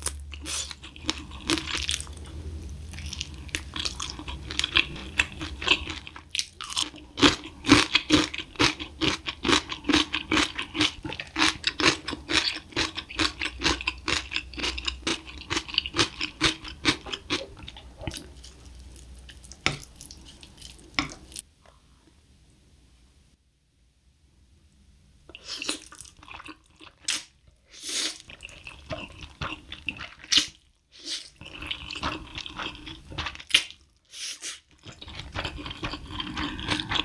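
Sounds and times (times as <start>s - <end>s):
crunching fried chicken: 0.0s - 17.4s.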